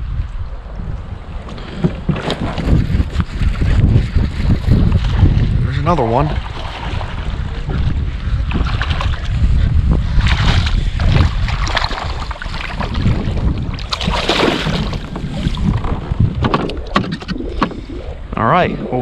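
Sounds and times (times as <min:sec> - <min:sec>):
wind buffeting microphone: 0:00.0 - 0:19.0
fish splashing at surface: 0:13.8 - 0:16.0.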